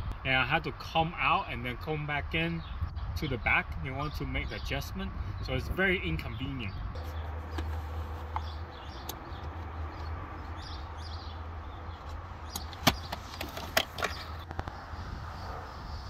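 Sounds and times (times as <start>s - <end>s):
steady low rumble: 0.0s - 16.0s
handling clicks and knocks: 7.0s - 10.8s, 11.9s - 14.6s.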